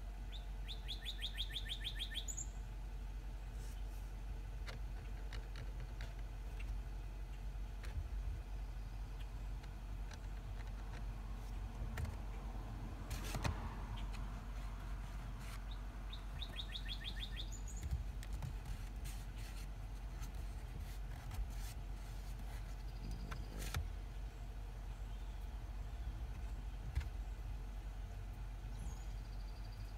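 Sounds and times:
bird chirping: 0.2s - 2.8s, 13.9s - 18.4s, 22.5s - 27.5s, 28.6s - 29.9s
steady low rumble: 2.4s - 29.9s
sharp clicks and knocks: 4.6s - 6.8s, 9.2s - 16.6s, 17.7s - 24.0s, 26.2s - 27.2s.

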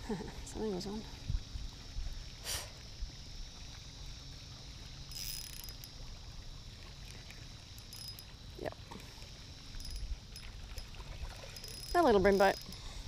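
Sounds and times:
wind rumbling on microphone: 0.0s - 4.2s
water lapping at shore: 0.0s - 13.0s
fishing reel whirring: 4.9s - 8.6s, 9.4s - 13.0s.

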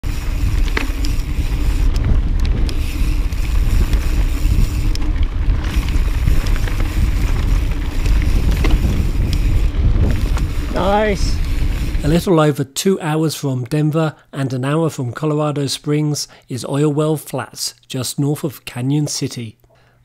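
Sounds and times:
bike knocks and rattles: 0.0s - 11.9s
wind buffeting microphone: 0.0s - 12.3s.

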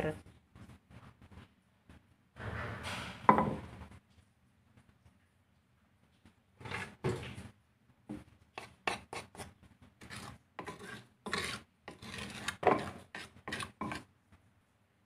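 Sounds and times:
short scraping strokes: 10.0s - 14.0s.

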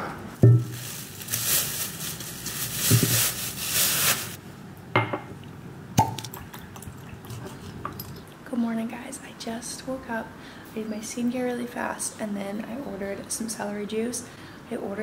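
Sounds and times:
bottle knocks: 0.4s - 0.7s, 5.0s - 5.3s
plastic bag rustling: 0.4s - 4.4s.

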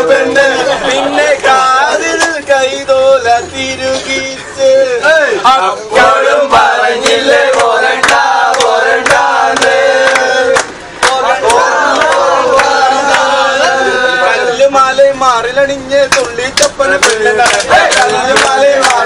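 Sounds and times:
men singing and chanting: 0.0s - 19.0s
hand claps: 2.2s - 2.4s, 7.0s - 13.3s, 16.1s - 19.0s.

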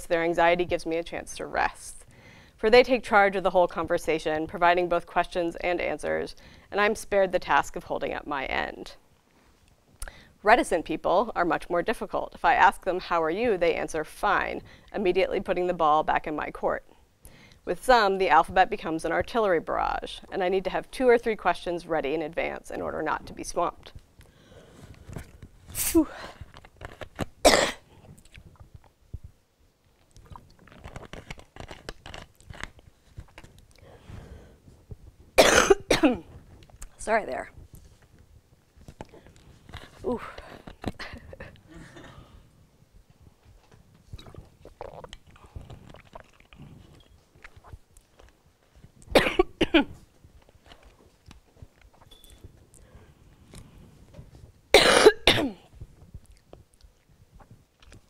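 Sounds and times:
soft breath: 2.1s - 2.6s, 24.2s - 25.4s, 33.8s - 34.9s, 52.7s - 54.2s
mouth and throat noises: 24.3s - 29.4s, 30.0s - 49.2s, 54.8s - 58.0s
woman coughing: 27.4s - 27.8s, 35.4s - 36.2s, 49.1s - 50.0s, 54.8s - 55.6s.

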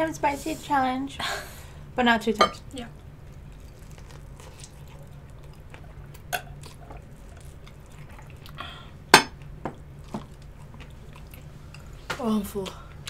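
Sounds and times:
wet mouth eating sounds: 3.3s - 12.0s.

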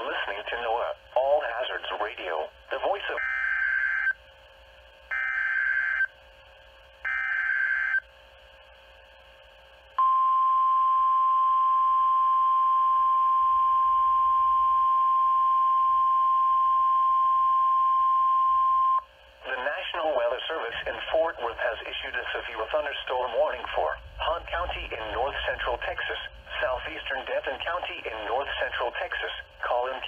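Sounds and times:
steady warning alarm tone: 3.2s - 4.2s, 5.1s - 6.1s, 7.0s - 8.1s.

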